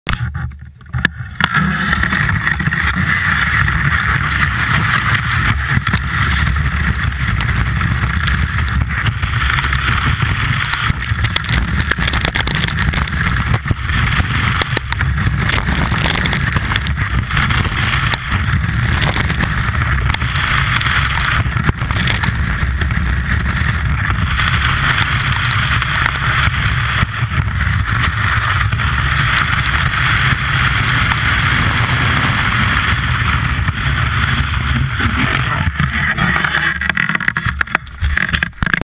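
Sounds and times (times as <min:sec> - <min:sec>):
skis running over packed snow: 0:00.1 - 0:38.8.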